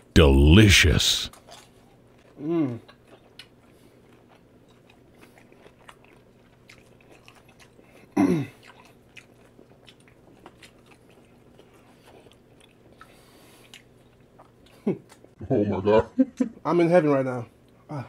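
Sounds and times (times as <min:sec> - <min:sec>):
person chewing food: 0:01.3 - 0:15.4.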